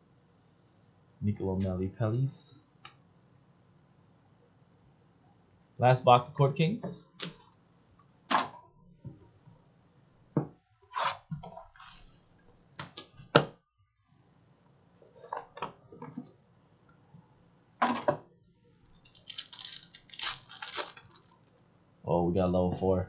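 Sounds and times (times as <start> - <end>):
foil crinkling: 19.0 - 21.4
card packs handled and opened: 19.1 - 21.4.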